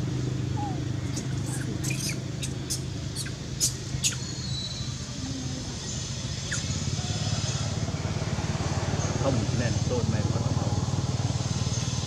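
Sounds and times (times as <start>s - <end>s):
engine humming: 0.0s - 12.0s
short high squeaks: 0.6s - 4.8s.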